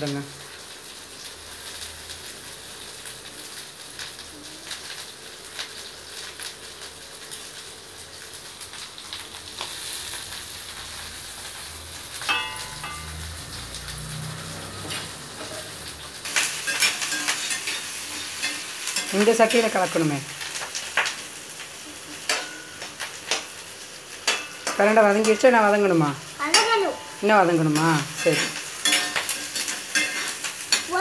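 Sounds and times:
hot oil sizzling and crackling: 0:00.0 - 0:31.0.

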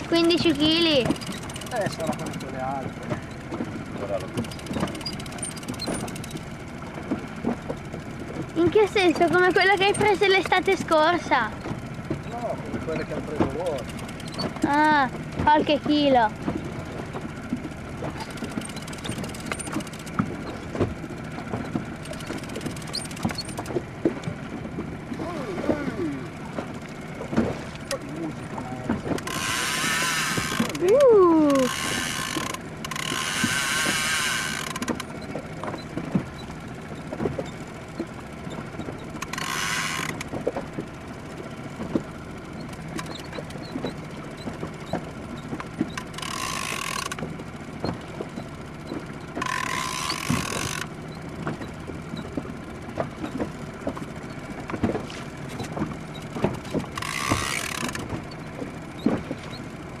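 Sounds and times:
fishing reel clicking and creaking: 0:00.2 - 0:02.8, 0:04.4 - 0:06.5, 0:29.2 - 0:35.2, 0:39.1 - 0:40.3, 0:45.9 - 0:47.3, 0:49.4 - 0:50.9, 0:56.9 - 0:58.0.

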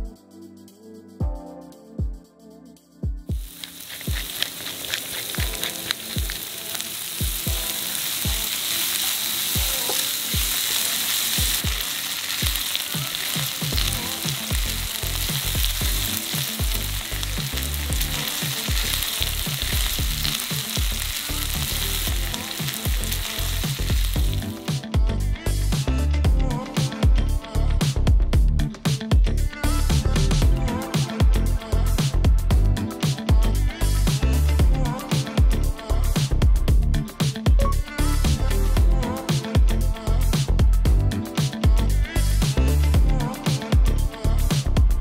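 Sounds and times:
steady music beat: 0:03.0 - 0:08.6, 0:09.6 - 0:27.2
food sizzling in a frying pan: 0:03.4 - 0:24.7.

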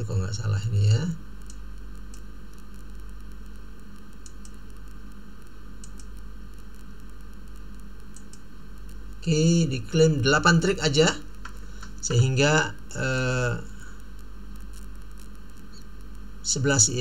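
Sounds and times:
low mains hum: 0:00.0 - 0:17.0
microphone hiss: 0:00.0 - 0:17.0
computer mouse clicks: 0:01.4 - 0:03.1, 0:04.0 - 0:05.2, 0:05.8 - 0:07.1, 0:08.0 - 0:08.5.

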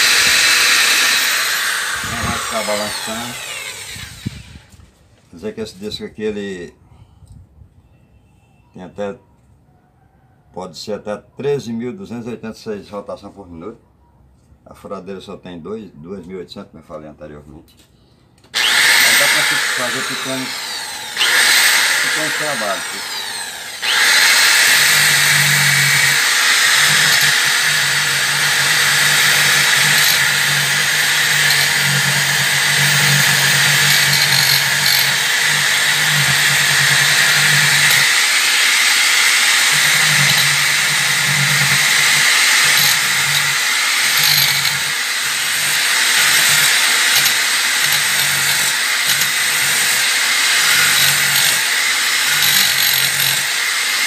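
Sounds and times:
electric drill motor whine: 0:00.0 - 0:04.8, 0:18.5 - 0:54.0
abrasive disc rasping on wood: 0:18.6 - 0:54.0.

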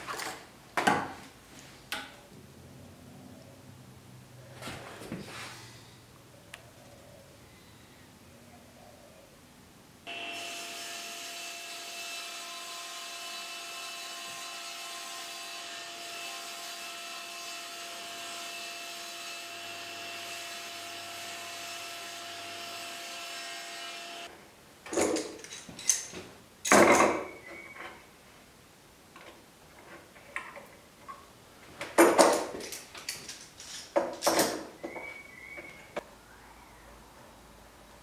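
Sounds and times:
table saw cutting: 0:10.1 - 0:24.3
knocks and clatters: 0:31.8 - 0:35.1.

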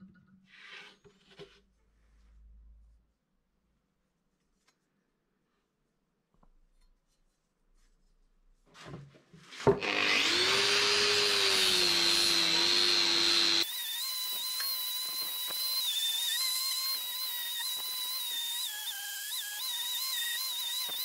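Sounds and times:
angle grinder whining: 0:09.8 - 0:21.0
grinder sanding metal blade: 0:10.0 - 0:21.0.

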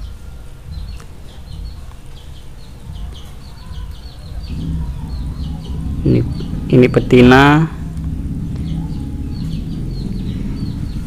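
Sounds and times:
low rumble: 0:03.7 - 0:11.0.

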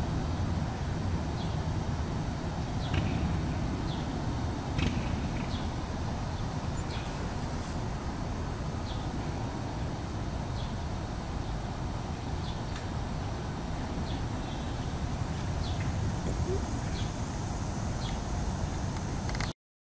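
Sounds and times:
low rumbling noise: 0:13.0 - 0:19.2.

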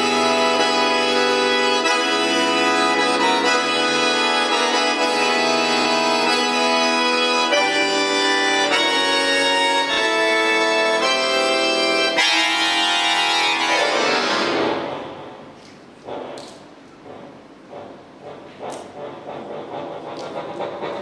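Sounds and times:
button accordion chords: 0:00.0 - 0:15.5.

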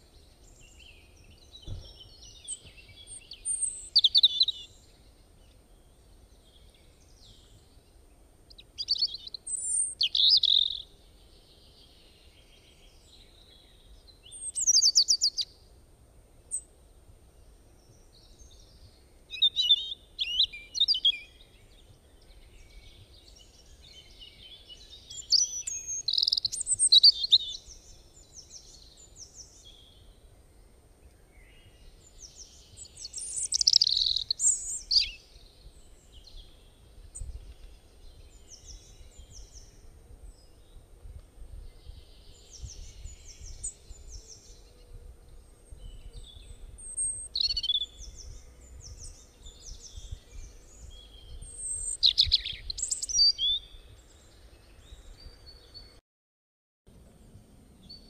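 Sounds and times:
songbirds chirping and trilling: 0:00.0 - 0:56.0.

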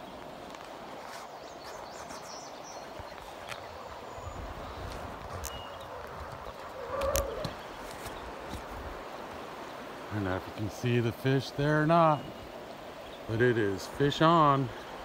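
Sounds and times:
river water rushing: 0:00.0 - 0:15.0.

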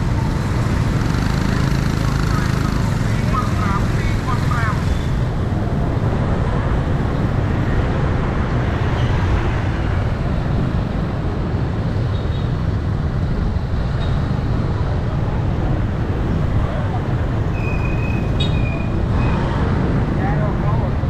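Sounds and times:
city street traffic: 0:00.0 - 0:21.0.

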